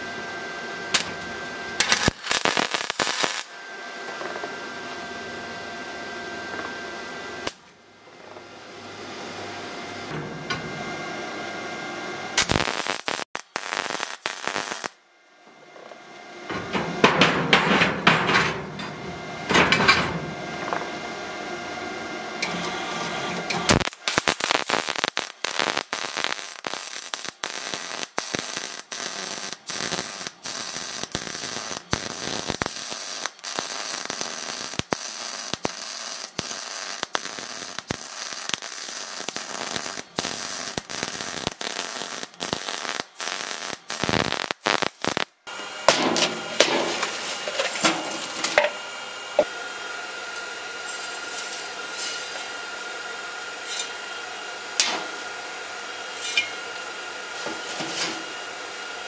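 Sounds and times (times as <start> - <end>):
welding arc crackling: 0.9 - 3.6, 12.4 - 15.0, 22.4 - 58.8.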